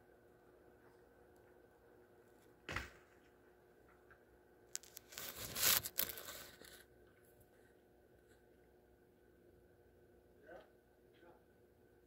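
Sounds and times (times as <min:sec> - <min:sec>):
crinkling rustle: 0:03.9 - 0:06.9.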